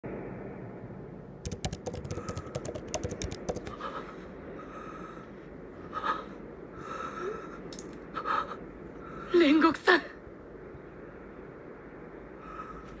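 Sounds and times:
keyboard keystroke clicks: 1.4s - 3.8s.

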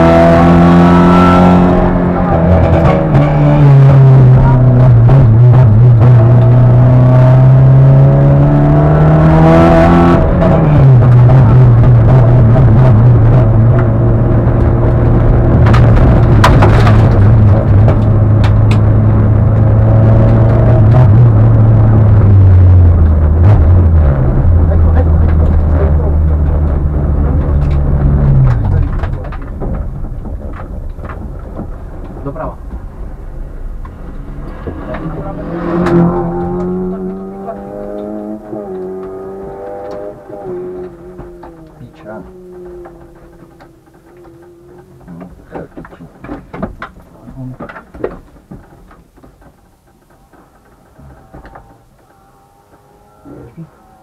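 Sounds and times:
car engine running and cutting out: 0.0s - 47.8s
low rumble: 0.1s - 47.6s
faint clicks and knocks: 39.8s - 53.2s.

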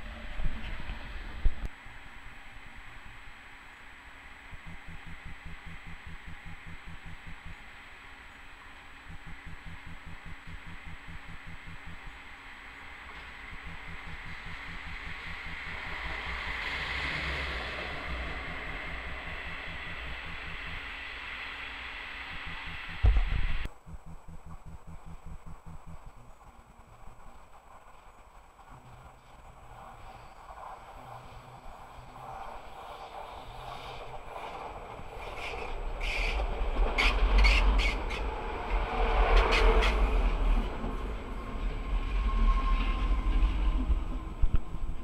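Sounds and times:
train rumble passing: 9.1s - 23.7s, 27.3s - 45.0s
loud thump: 23.0s - 23.6s.

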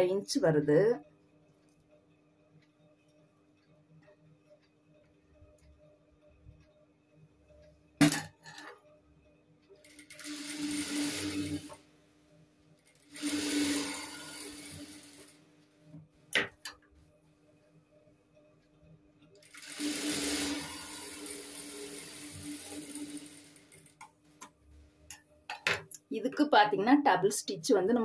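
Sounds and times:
industrial sewing machine stitching: 9.8s - 11.8s, 12.8s - 15.4s, 19.4s - 24.0s.

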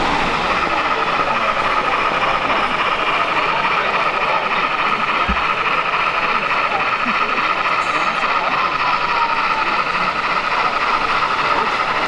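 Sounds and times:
busy hall noise: 0.0s - 12.0s
model train whirring: 0.0s - 12.0s.

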